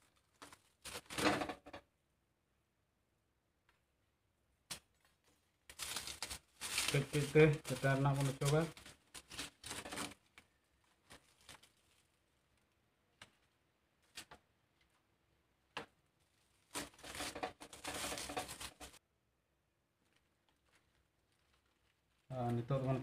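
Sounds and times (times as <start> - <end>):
dry leaves crackling and rustling: 5.7 - 10.1.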